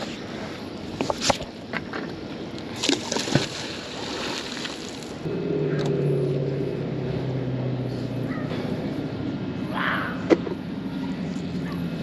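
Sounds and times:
engine droning low: 0:05.0 - 0:12.0.

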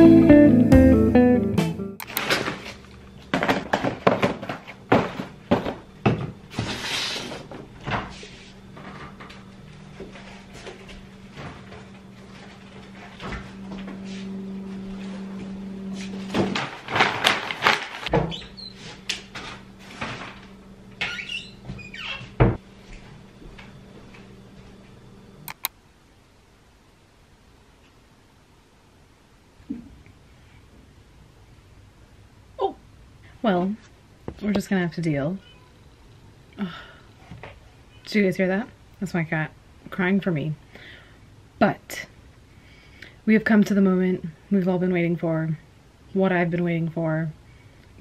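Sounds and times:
steady low hum: 0:00.0 - 0:48.0
items knocking and rattling: 0:02.1 - 0:06.8, 0:16.3 - 0:18.4
cupboard doors opening and closing: 0:18.1 - 0:18.7, 0:21.0 - 0:22.6.

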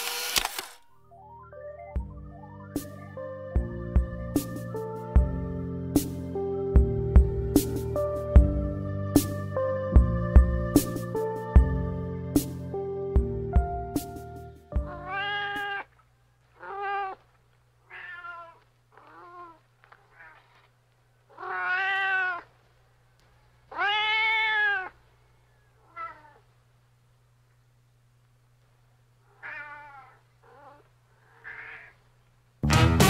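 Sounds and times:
faint low hum: 0:14.5 - 0:32.6
cat meowing: 0:14.8 - 0:16.0, 0:16.6 - 0:20.6, 0:21.3 - 0:22.5, 0:23.7 - 0:25.0, 0:25.8 - 0:26.5, 0:29.3 - 0:32.0.

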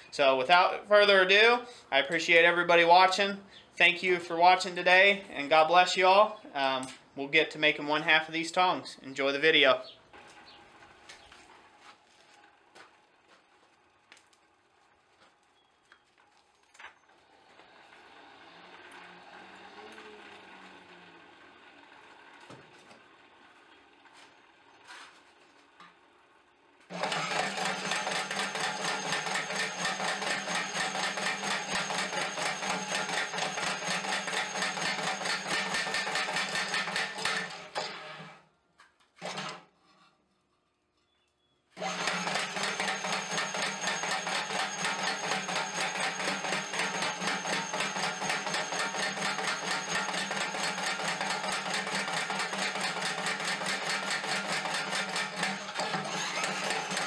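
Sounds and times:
power hammer hammering steel: 0:26.9 - 0:37.8, 0:41.8 - 0:57.0.

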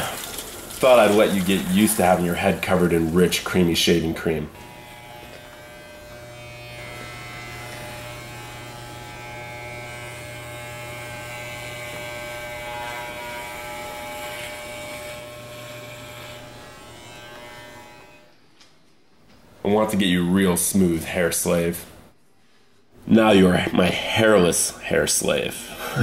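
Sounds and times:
electric hair clippers buzzing: 0:04.0 - 0:18.4.

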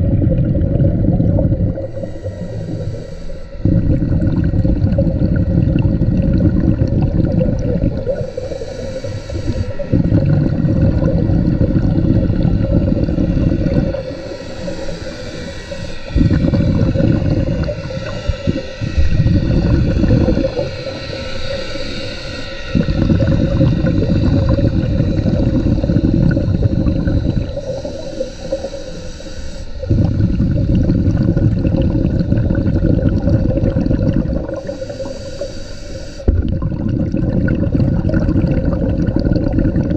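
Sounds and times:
scuba diver bubbly exhalations: 0:00.0 - 0:02.9, 0:03.6 - 0:21.6, 0:22.7 - 0:28.8, 0:29.8 - 0:35.3, 0:36.3 - 0:39.9
faint steady hum: 0:00.0 - 0:39.9
regulator hissing inhalations: 0:01.8 - 0:03.8, 0:08.0 - 0:10.1, 0:11.6 - 0:30.4, 0:34.4 - 0:36.3.

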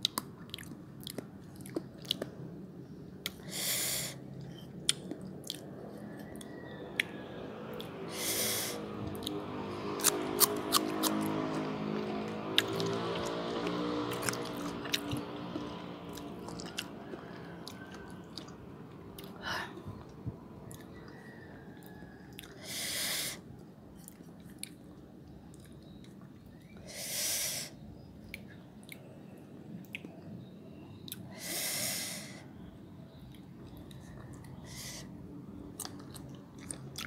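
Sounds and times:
chewing and crunching mango: 0:00.0 - 0:03.6, 0:04.4 - 0:07.9, 0:08.8 - 0:22.7, 0:23.9 - 0:26.8, 0:35.5 - 0:37.0.

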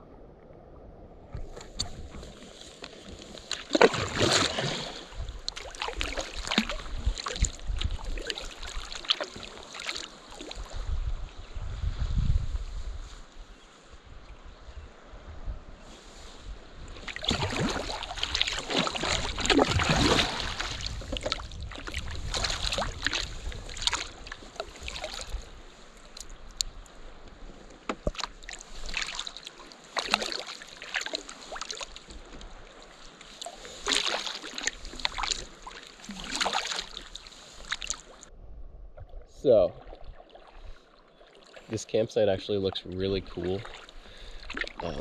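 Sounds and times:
wind rumbling on microphone: 0:00.0 - 0:03.5, 0:04.6 - 0:08.9, 0:10.5 - 0:29.0, 0:37.5 - 0:40.9
kayak paddle splashing: 0:01.2 - 0:11.5, 0:16.0 - 0:38.3, 0:39.8 - 0:45.0
water dripping from paddle: 0:05.4 - 0:10.7, 0:17.0 - 0:25.4, 0:26.0 - 0:38.2.

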